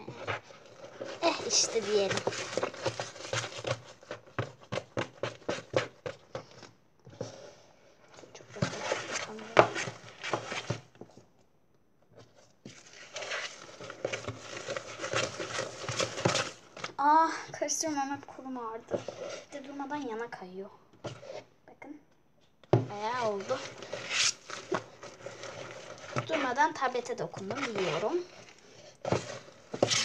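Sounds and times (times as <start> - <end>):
slime squishing and scraping: 0.0 - 11.4, 12.1 - 20.4, 21.0 - 21.6, 22.8 - 30.0.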